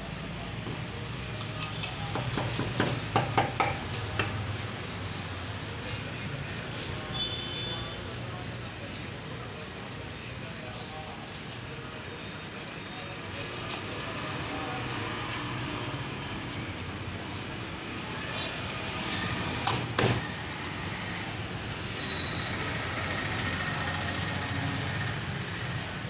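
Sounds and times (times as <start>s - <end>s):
street traffic noise: 0.0s - 26.0s
knocks on wooden cutting board: 2.1s - 4.4s.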